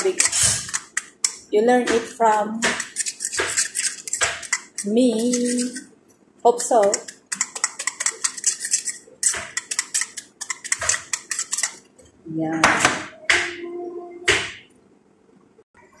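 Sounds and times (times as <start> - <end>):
short loud steady-pitch tones: 13.2 - 14.3.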